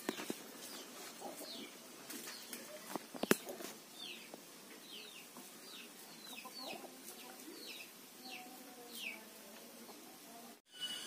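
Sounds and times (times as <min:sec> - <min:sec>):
chicks peeping: 0:00.1 - 0:09.2
chickens clucking softly: 0:06.2 - 0:07.8.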